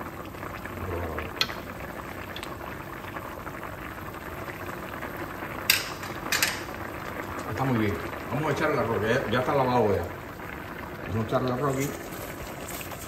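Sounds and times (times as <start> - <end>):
liquid boiling in a pot: 0.0 - 13.0.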